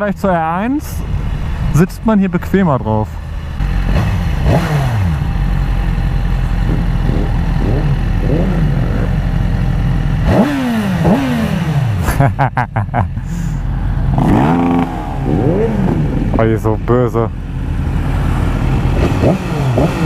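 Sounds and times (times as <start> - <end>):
wind noise: 0.2 - 5.4
engine crackles: 0.8 - 20.0
motorcycle engine: 0.8 - 20.0.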